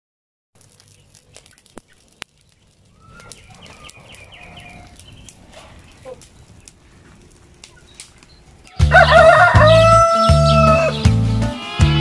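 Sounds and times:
fire pops: 0.6 - 9.2
burning leaves crackling: 0.6 - 12.0
chickens clucking: 2.9 - 11.0.

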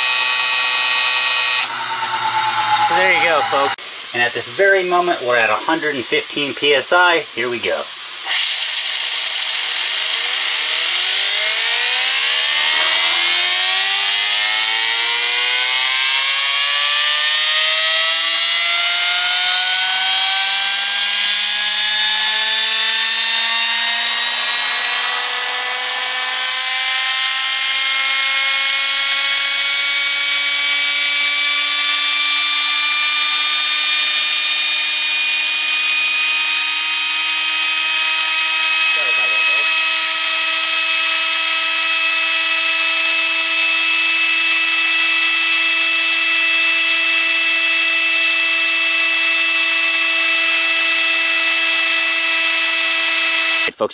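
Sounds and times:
turbine whine rising: 0.0 - 53.8.

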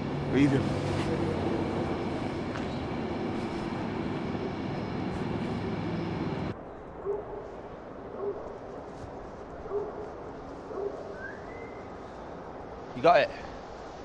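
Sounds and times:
mechanical rumble with low hum: 0.0 - 6.6.

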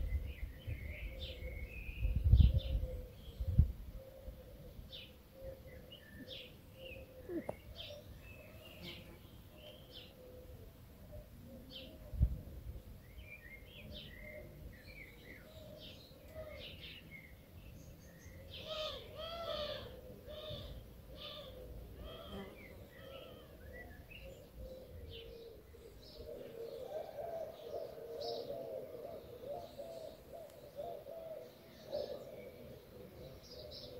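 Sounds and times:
birds chirping: 5.0 - 10.3.

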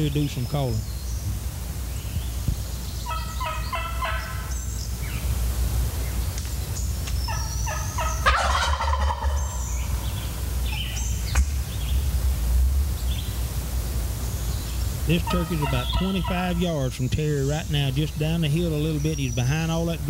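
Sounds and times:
faint songbird chirps: 0.0 - 12.1, 12.8 - 20.0
turkey call yelps: 3.0 - 4.7, 7.3 - 11.0, 15.1 - 16.8
turkey gobbling: 3.0 - 5.2, 7.3 - 11.1, 15.0 - 19.9.

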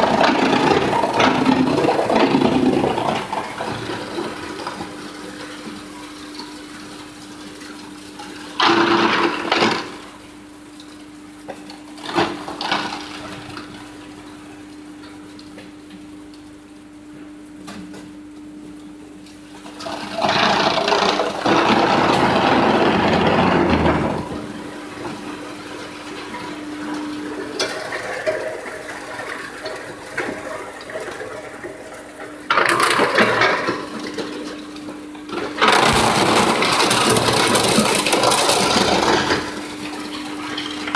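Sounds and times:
wood crushing and grinding: 0.0 - 10.1, 19.6 - 40.9
wood chipper humming: 0.0 - 40.9.

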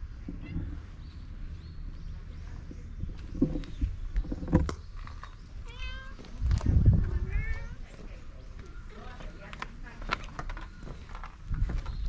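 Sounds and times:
cat meowing: 5.7 - 6.2.

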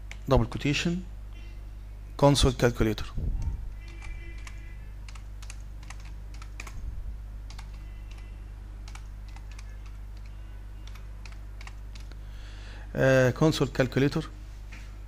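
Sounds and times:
steady low hum: 0.0 - 15.0
keyboard typing: 3.4 - 6.8, 7.5 - 12.2.

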